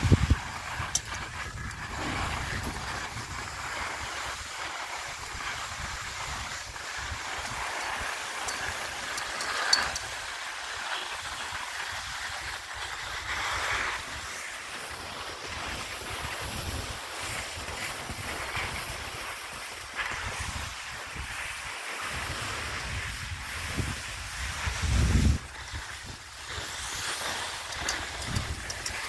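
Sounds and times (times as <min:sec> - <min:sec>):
wind buffeting microphone: 0:00.0 - 0:03.7, 0:22.7 - 0:26.3, 0:28.1 - 0:29.0
skis sliding over snow: 0:00.0 - 0:29.0.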